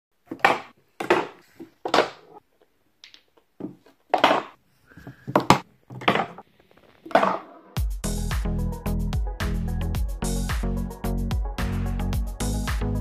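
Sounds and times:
billiard balls clacking: 0.2 - 2.4, 3.0 - 4.6, 5.3 - 6.4, 7.0 - 7.8.

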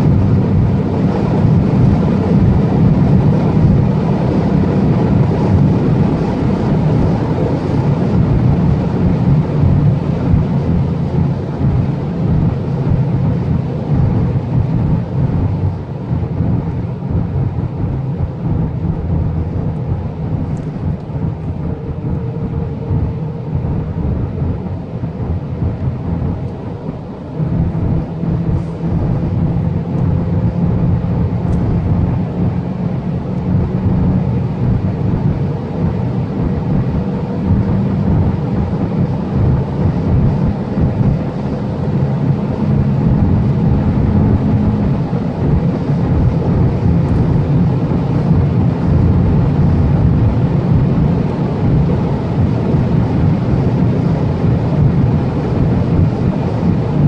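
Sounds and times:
car engine accelerating: 0.0 - 57.0
road and wind noise: 0.0 - 57.0.

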